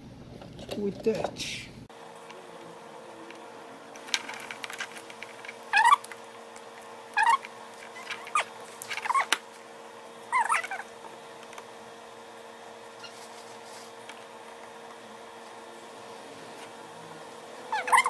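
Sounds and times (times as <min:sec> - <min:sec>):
steady hum: 0:00.0 - 0:18.0
hand tools clicking and rattling: 0:04.0 - 0:06.2
chirping squeaks: 0:05.7 - 0:06.1, 0:07.1 - 0:09.3, 0:10.3 - 0:10.9, 0:13.0 - 0:13.3, 0:17.7 - 0:18.0.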